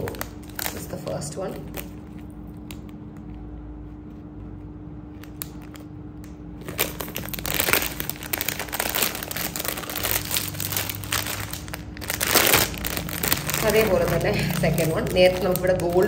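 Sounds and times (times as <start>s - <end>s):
plastic pouch crinkling: 0.0s - 3.0s, 6.5s - 16.0s.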